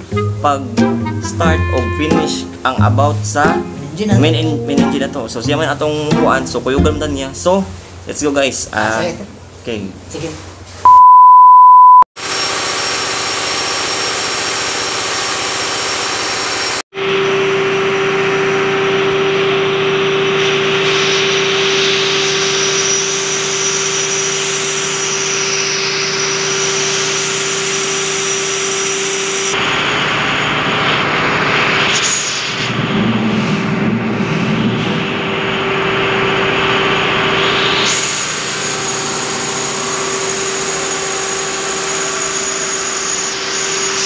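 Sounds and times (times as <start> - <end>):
diesel engine drone: 0.0 - 9.7, 14.2 - 44.0
loud electronic beep: 10.9 - 12.1.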